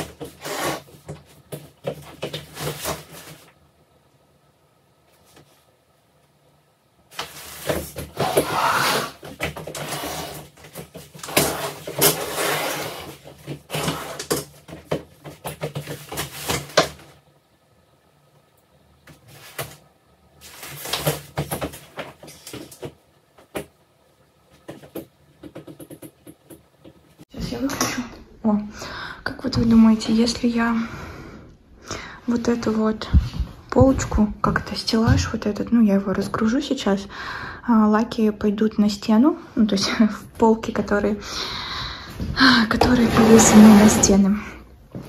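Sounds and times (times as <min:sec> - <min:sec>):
objects rustling and scraping: 0:00.0 - 0:03.7, 0:07.1 - 0:17.2, 0:19.1 - 0:23.6, 0:42.2 - 0:45.0.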